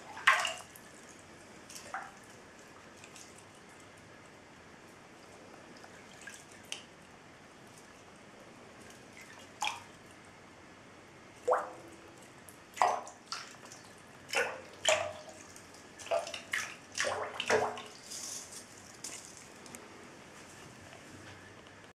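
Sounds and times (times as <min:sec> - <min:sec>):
water plopping in a bathtub: 0:00.0 - 0:00.8, 0:01.7 - 0:02.3, 0:09.2 - 0:09.9, 0:11.4 - 0:18.0.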